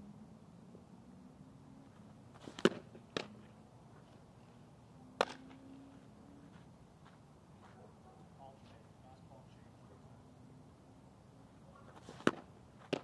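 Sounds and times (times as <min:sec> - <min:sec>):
slap of pitching release: 0:05.2 - 0:05.5, 0:12.2 - 0:13.0
ball popping into glove: 0:05.2 - 0:05.6.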